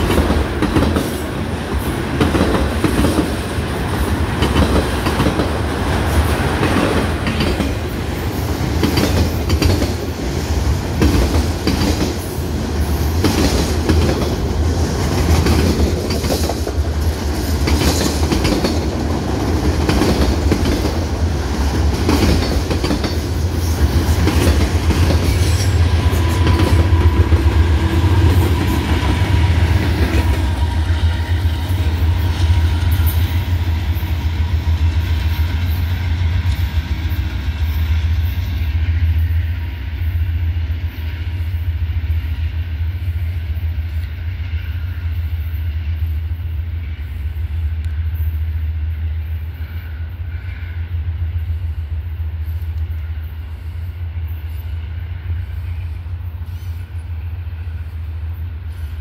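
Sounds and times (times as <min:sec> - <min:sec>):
freight train rumbling past: 0:00.0 - 0:59.0
wheels clicking over rail joints: 0:15.1 - 0:21.0.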